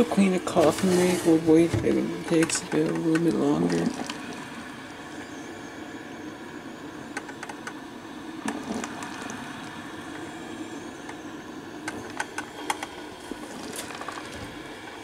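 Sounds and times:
coffee maker gurgling hiss: 0.0 - 15.0
small ticks and pops: 7.1 - 7.8.

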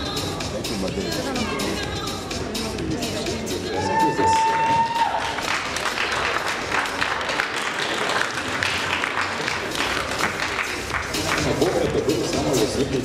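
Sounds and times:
audience applauding and cheering: 3.6 - 12.5
long high cheer: 3.7 - 6.3.

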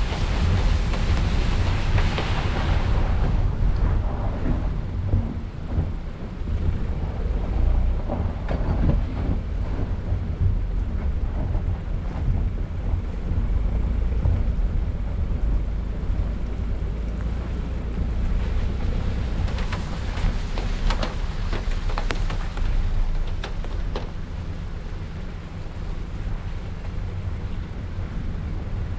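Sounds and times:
tyres crackling in slush: 0.0 - 5.5, 13.0 - 28.9
engine and tyres rumbling: 0.0 - 28.9
wind buffeting microphone: 0.0 - 28.9.

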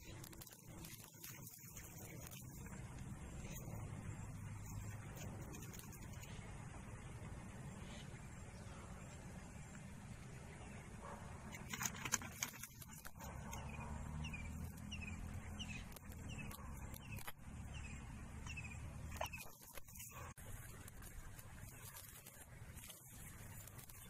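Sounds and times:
low outdoor rumble: 0.0 - 24.0.

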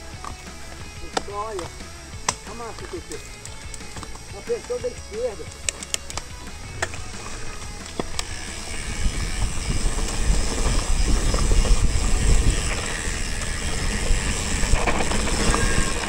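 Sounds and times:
bike tyres rumbling on dirt: 0.0 - 16.0
sharp clicks: 0.1 - 8.7.

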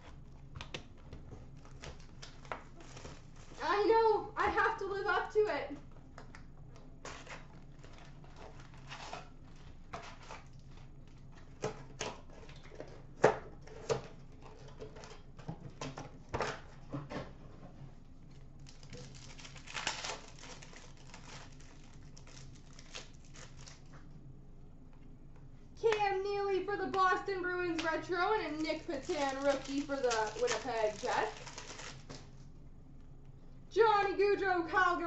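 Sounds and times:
plastic wrapper crinkling: 0.4 - 3.8, 7.0 - 12.7, 18.6 - 24.1, 26.8 - 32.5.

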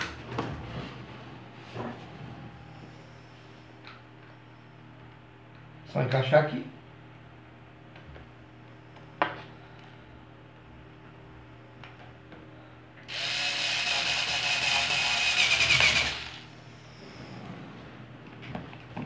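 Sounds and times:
power screwdriver running: 13.1 - 16.4.

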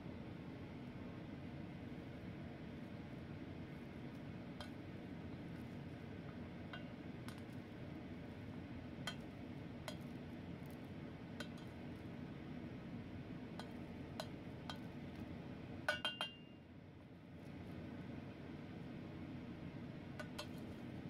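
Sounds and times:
paddle clinking on metal pot: 15.9 - 16.5.

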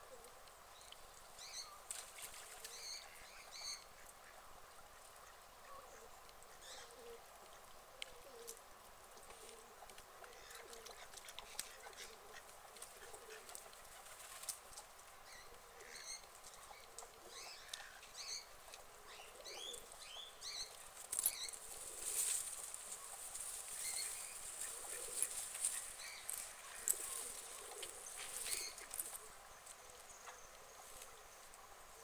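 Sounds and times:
small birds chirping: 10.3 - 31.7.

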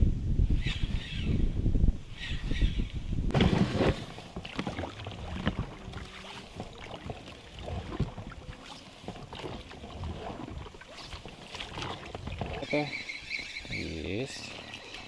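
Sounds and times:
oars knocking in oarlocks: 3.3 - 13.8.

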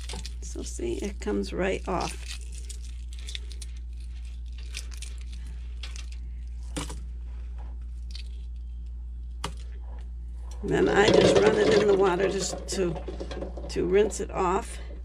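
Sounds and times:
eggshell cracking while peeled: 0.0 - 6.2
steady low hum: 0.0 - 15.0.

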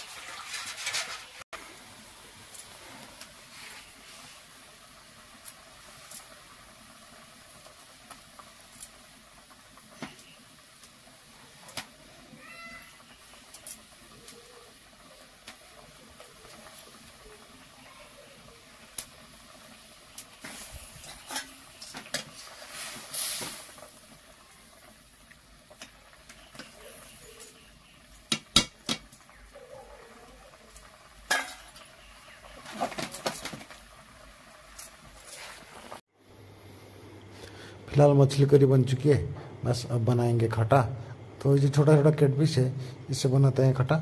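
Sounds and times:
steel utensils clinking: 21.0 - 22.2, 31.3 - 31.8.

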